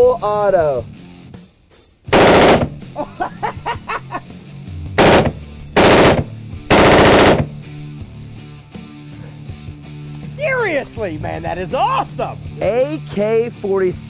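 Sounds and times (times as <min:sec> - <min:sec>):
assault rifle automatic bursts: 0:02.2 - 0:03.0, 0:05.0 - 0:07.7.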